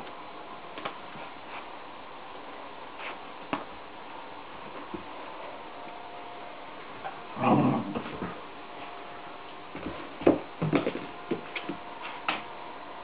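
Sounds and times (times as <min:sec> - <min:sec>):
puppy whining growl: 0:07.0 - 0:08.4.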